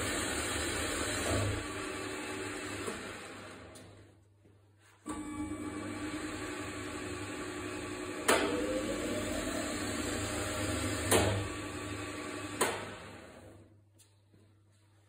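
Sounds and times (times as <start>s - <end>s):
lathe motor humming: 5.1s - 13.4s.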